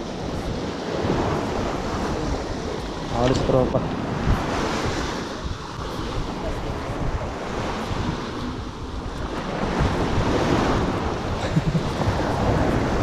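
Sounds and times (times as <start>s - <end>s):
waves washing onto shore: 0.0s - 13.0s
wind buffeting microphone: 0.0s - 13.0s.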